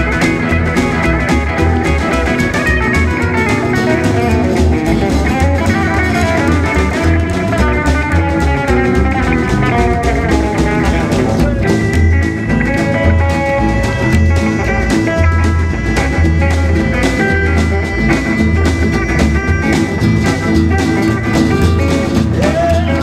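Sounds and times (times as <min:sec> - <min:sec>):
electric guitar solo: 0:00.0 - 0:23.0
rockabilly band playing: 0:00.0 - 0:23.0.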